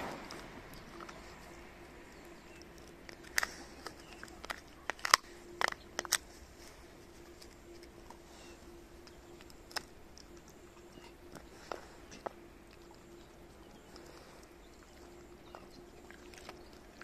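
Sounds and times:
dog crunching bones: 0.2 - 17.0.

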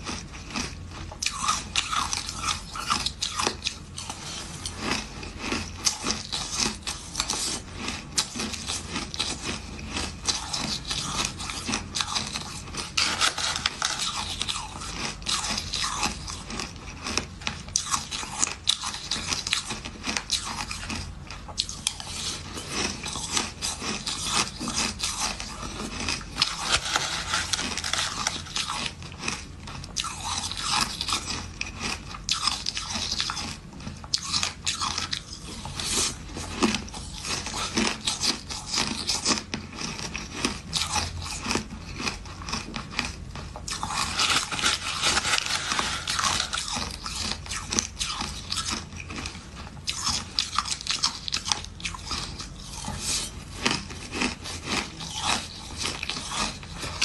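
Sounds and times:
ice crunching between teeth: 0.0 - 57.0
metal spoon scraping ice: 1.3 - 17.2, 21.6 - 29.4, 43.7 - 49.3, 50.0 - 57.0.

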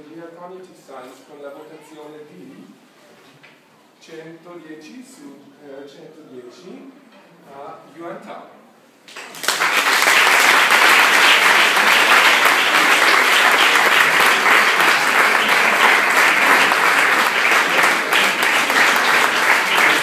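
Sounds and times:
audience applauding: 9.1 - 20.0.

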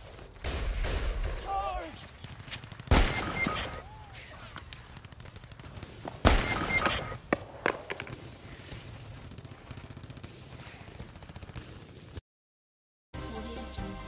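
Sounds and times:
burst of gunshots: 0.0 - 12.2
sharp single gunshots: 2.9 - 4.4, 6.2 - 8.1.

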